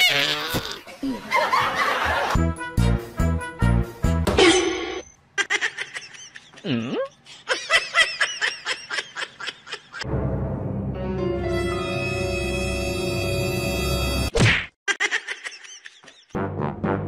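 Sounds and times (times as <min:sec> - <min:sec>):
person laughing in rapid bursts: 0:05.4 - 0:10.0, 0:14.9 - 0:16.4.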